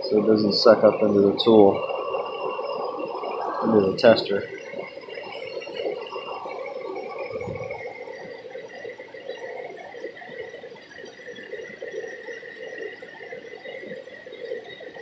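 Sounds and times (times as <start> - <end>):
steady high thin tone: 0.0 - 8.1
air bubbling through fluid: 1.8 - 8.7.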